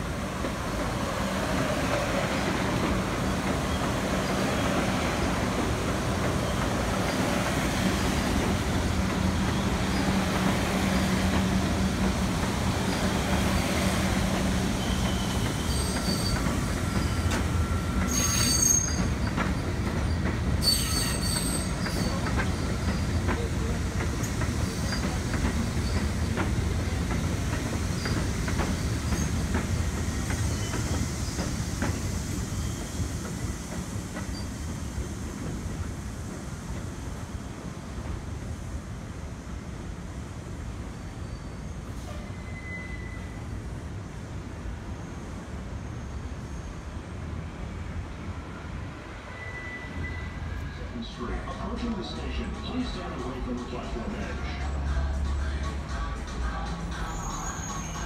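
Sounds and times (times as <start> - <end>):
train wheel rumble and clacking: 0.0 - 41.2
high wheel squeals: 14.6 - 23.2, 41.2 - 43.4, 49.3 - 50.8, 56.9 - 58.0.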